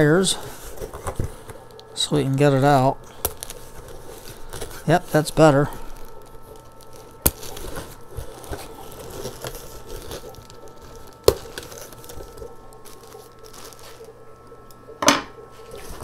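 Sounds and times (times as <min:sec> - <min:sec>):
plastic bag crinkling: 0:00.3 - 0:14.6
cardboard box rustling: 0:03.4 - 0:14.1.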